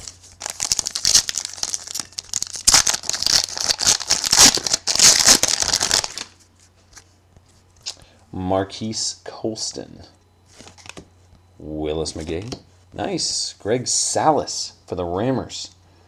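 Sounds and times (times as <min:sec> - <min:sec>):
plastic foil wrapper tearing and crinkling: 0:00.0 - 0:06.4.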